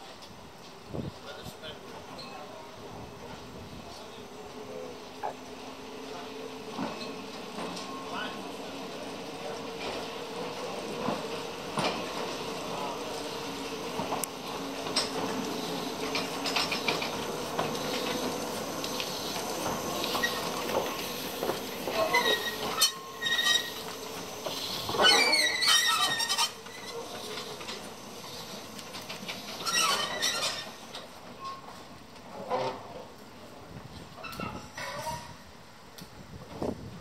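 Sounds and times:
steam hissing: 1.1s - 31.2s
wheel squeals on track: 20.0s - 21.1s, 21.8s - 27.1s, 29.3s - 30.8s.

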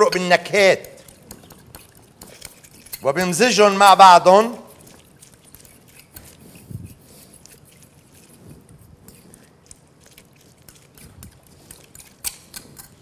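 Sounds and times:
fork clicking against glass dish: 0.0s - 3.3s, 9.1s - 13.0s.

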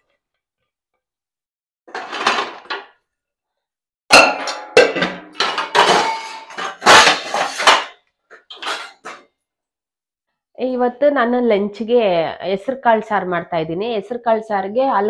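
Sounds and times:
steel pots clanking: 1.9s - 2.8s, 4.1s - 9.2s.

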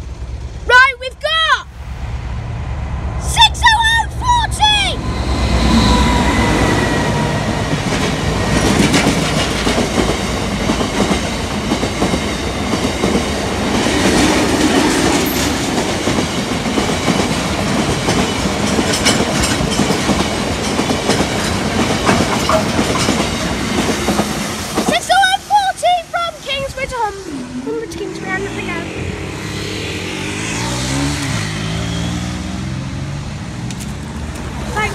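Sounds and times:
diesel locomotive passing: 0.0s - 34.9s
train wheels rumbling and clicking: 3.6s - 28.9s, 33.6s - 34.9s.

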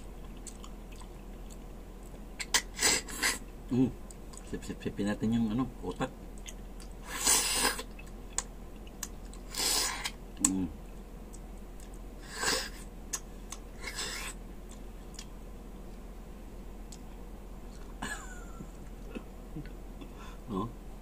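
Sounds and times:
person humming: 10.4s - 10.8s, 19.1s - 20.8s.

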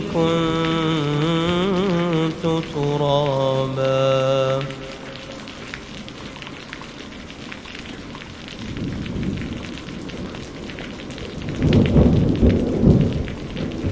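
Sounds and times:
steady rain: 0.0s - 13.9s
thunder rumbling: 0.0s - 13.9s.

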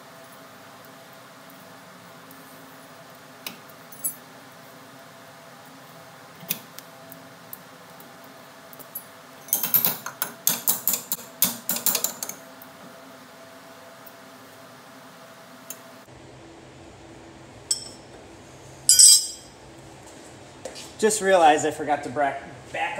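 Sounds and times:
metal tools clicking: 18.9s - 19.4s.

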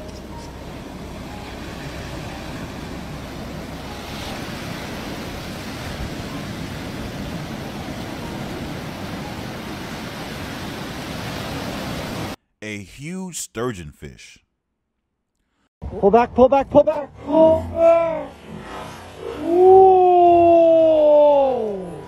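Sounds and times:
ocean surf breaking on beach: 1.4s - 12.4s.

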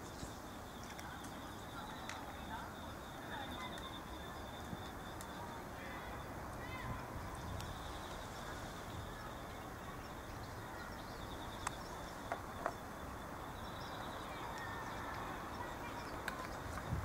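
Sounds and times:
outdoor background hiss: 0.0s - 17.0s
faint clicks: 7.5s - 7.8s, 11.6s - 12.8s, 14.4s - 16.9s.

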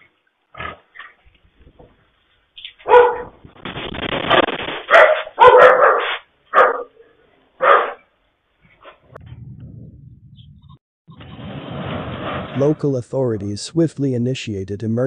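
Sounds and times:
dog barking: 2.8s - 3.4s, 4.9s - 8.1s.

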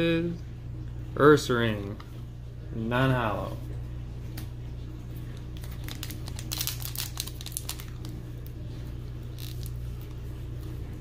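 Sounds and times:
low steady hum: 0.0s - 11.0s
foil wrapper crinkling: 5.4s - 10.2s.

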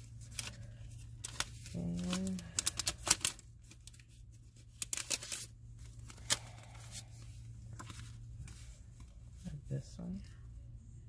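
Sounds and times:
paper sheets rustling: 0.0s - 7.0s
low steady hum: 0.0s - 11.0s.

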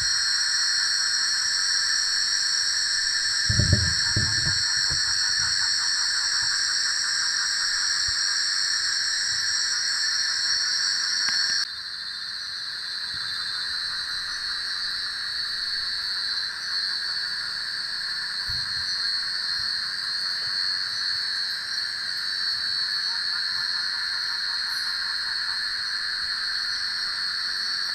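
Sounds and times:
night insects trilling: 0.0s - 27.9s
faint low thump: 3.5s - 5.6s.

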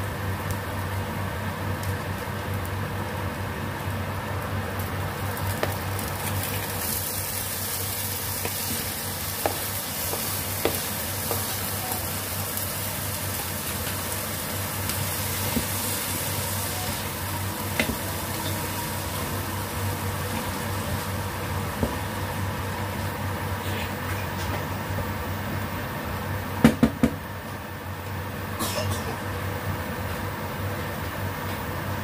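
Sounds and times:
tomatoes sizzling in oil: 0.0s - 25.3s.

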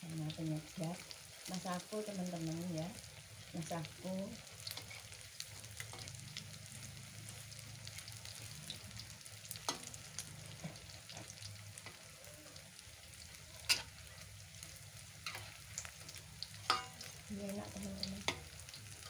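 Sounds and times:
food sizzling in hot oil: 0.0s - 19.0s
metal ladle scraping a wok: 4.7s - 5.2s, 16.6s - 17.0s.

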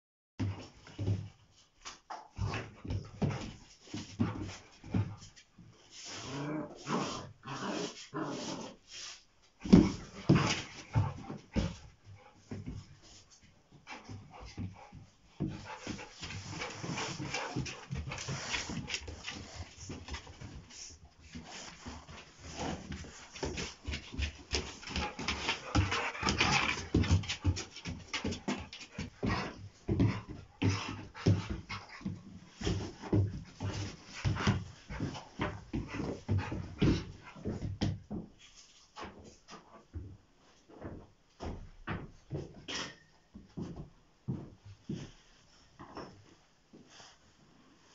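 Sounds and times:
dogs scuffling on concrete: 14.5s - 40.0s.

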